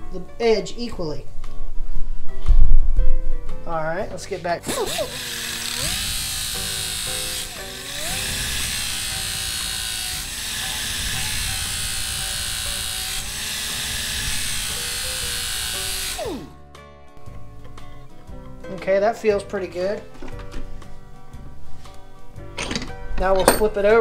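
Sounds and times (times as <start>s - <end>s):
sharpener grinding metal blade: 4.7s - 16.5s
motor whine winding down: 4.7s - 16.6s.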